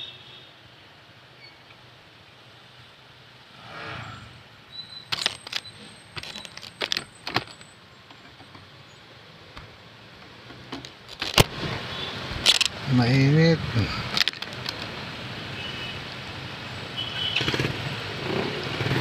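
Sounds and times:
sharp clicks and rattles: 5.1 - 8.7, 10.4 - 11.5, 12.4 - 12.8, 14.1 - 14.9.

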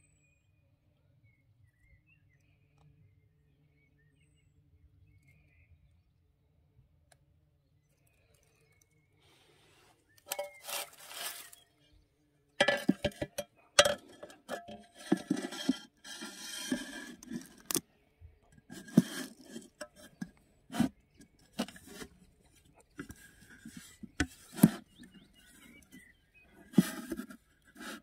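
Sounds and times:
glass scraping in metal frame: 10.3 - 11.6, 12.6 - 17.8, 18.7 - 22.1.

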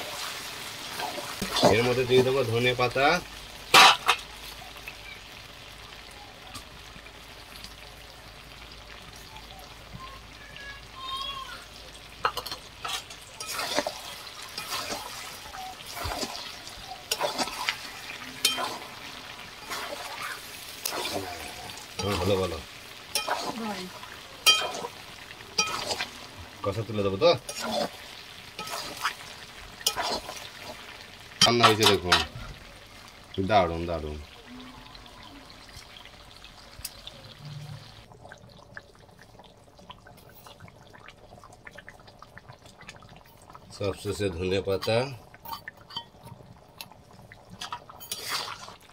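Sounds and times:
wok hissing: 0.0 - 38.1, 47.5 - 48.9
curry boiling and bubbling: 0.0 - 48.9
gravy squelching and sloshing: 11.6 - 33.4, 34.4 - 48.9
spatula scraping and knocking pan: 12.2 - 19.0, 28.6 - 29.2, 29.8 - 30.8.

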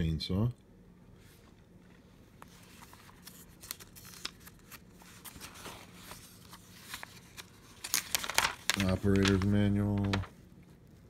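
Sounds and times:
paper pages rustling: 1.9 - 10.5.

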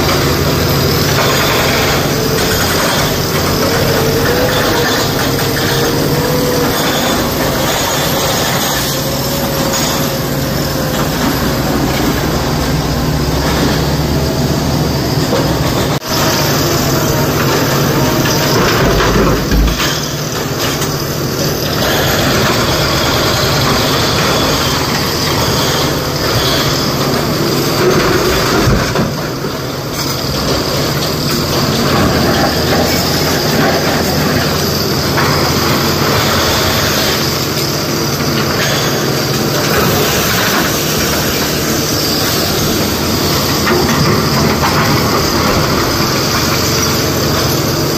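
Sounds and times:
diesel engines running under load: 0.0 - 47.9.

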